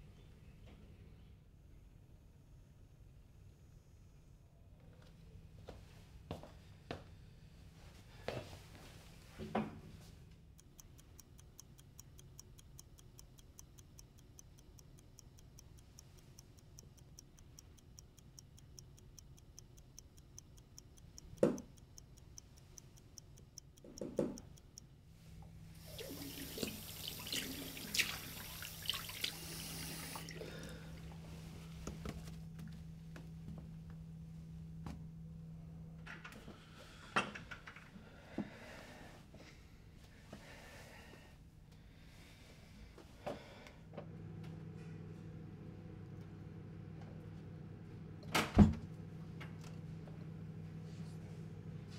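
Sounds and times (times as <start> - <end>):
steady low hum: 0.1 - 51.9
wall clock ticking: 10.5 - 25.0.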